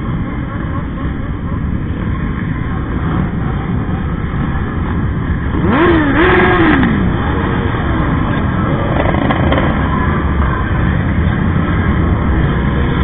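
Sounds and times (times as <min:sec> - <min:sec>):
motorcycle engines rumbling: 0:00.0 - 0:13.0
motorcycle revving hard: 0:05.3 - 0:10.2.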